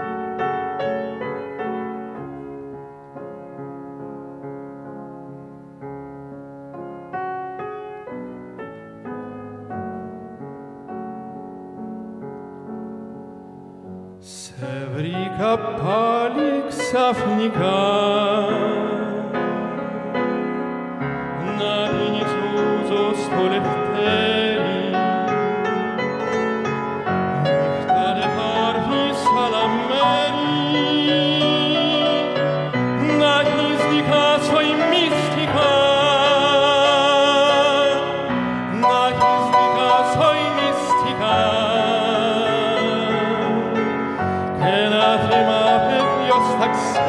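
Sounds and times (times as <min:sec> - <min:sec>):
grand piano: 0:00.0 - 0:47.0
man singing with vibrato: 0:14.2 - 0:47.0.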